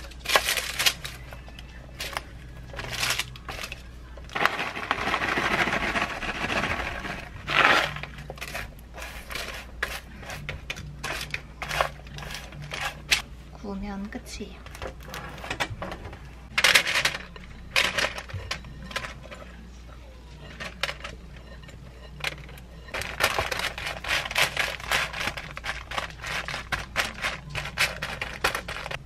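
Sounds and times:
granola rustling and clattering: 0.0s - 10.0s, 22.9s - 29.0s
paper crinkling: 0.0s - 13.2s, 22.9s - 29.0s
spatula scraping: 4.4s - 13.2s.

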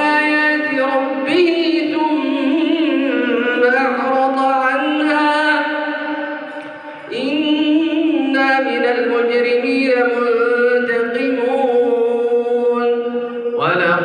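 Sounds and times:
person reciting melodically: 0.0s - 14.0s.

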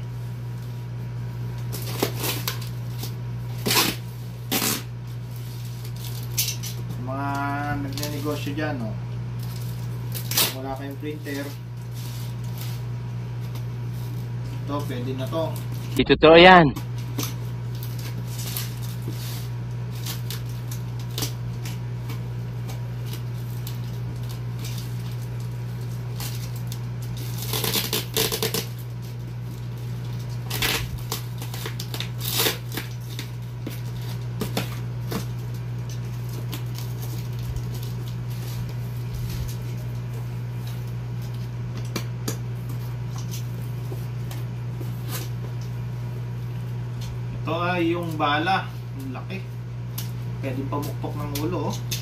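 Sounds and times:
steady low hum: 0.0s - 52.0s
knife slitting packing tape: 1.6s - 6.8s, 9.4s - 12.8s, 17.1s - 39.6s
cardboard rustling and scraping: 22.7s - 41.6s.

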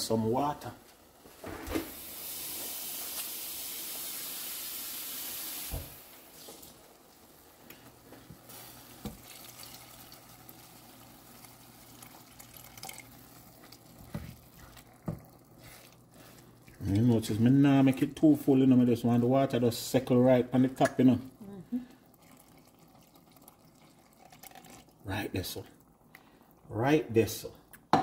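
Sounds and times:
water pouring into pot: 1.9s - 21.2s, 21.8s - 26.7s
tap running into jug: 9.0s - 10.2s, 12.0s - 15.4s.

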